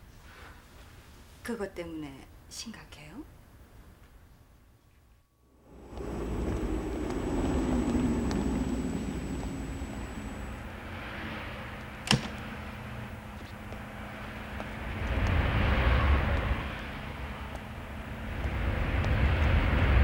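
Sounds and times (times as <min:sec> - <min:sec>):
vehicles passing: 0:05.5 - 0:20.0.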